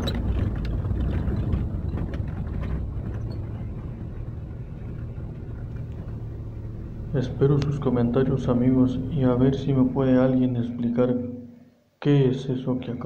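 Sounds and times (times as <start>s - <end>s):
knocks and rattles: 0.0s - 7.2s
vehicle rumbling over dirt road: 0.0s - 11.1s.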